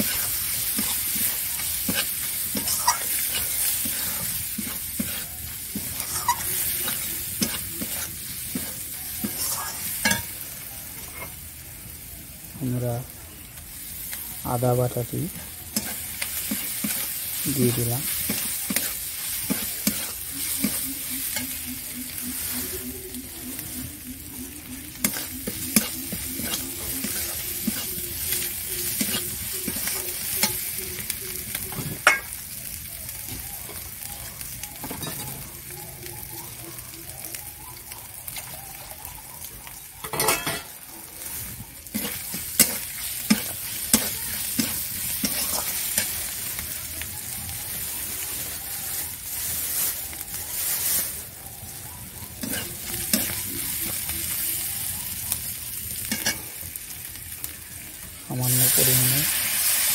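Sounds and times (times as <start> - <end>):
metal spatula scraping pan: 0.0 - 10.4, 15.7 - 21.6, 25.0 - 30.6, 40.0 - 46.3, 52.4 - 54.0
masala sizzling in oil: 0.0 - 59.9
spatula clinking against pan: 5.8 - 10.4, 40.0 - 40.8.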